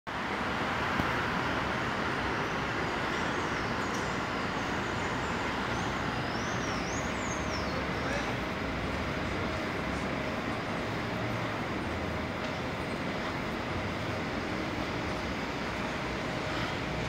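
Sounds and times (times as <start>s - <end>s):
city traffic hum: 0.1s - 17.0s
birds chirping: 2.3s - 8.5s.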